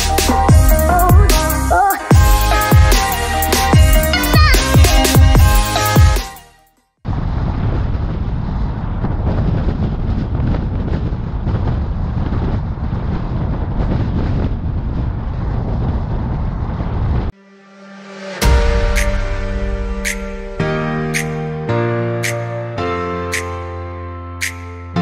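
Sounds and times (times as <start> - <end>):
wind buffeting microphone: 7.1 - 17.3.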